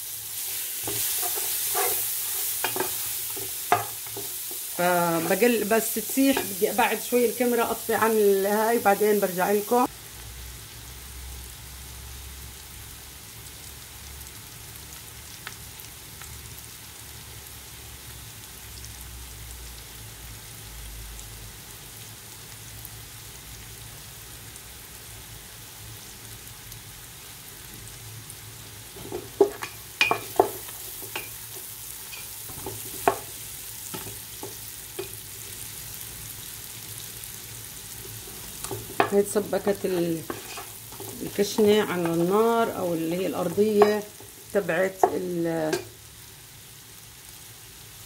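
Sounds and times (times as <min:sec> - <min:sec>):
vegetables sizzling in oil: 0:00.0 - 0:48.0
wooden spoon scraping pot: 0:00.5 - 0:06.6, 0:29.0 - 0:31.4, 0:38.0 - 0:42.4.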